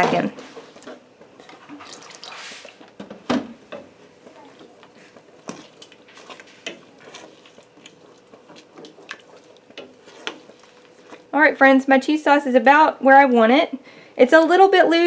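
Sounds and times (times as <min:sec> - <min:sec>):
spoon stirring thick sauce: 0:04.0 - 0:12.0.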